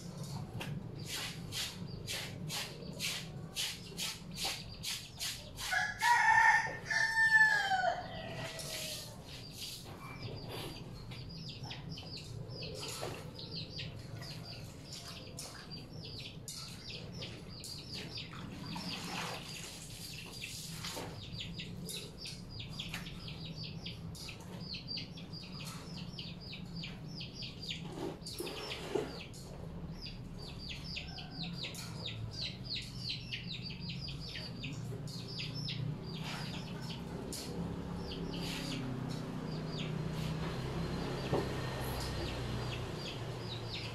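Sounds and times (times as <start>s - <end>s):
rooster crowing: 5.7s - 9.1s
water splashing from washing clothes: 18.3s - 21.3s.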